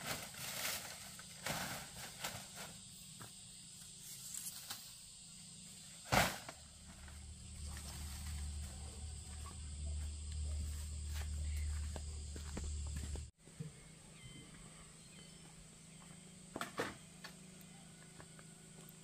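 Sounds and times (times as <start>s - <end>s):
dry leaf thatch rustling: 0.0s - 2.8s, 6.2s - 9.4s
low steady hum: 6.2s - 19.0s.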